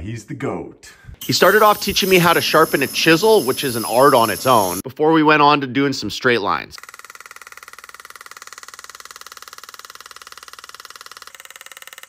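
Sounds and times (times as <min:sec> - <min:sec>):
pneumatic engraving tool tapping: 0:06.9 - 0:12.0.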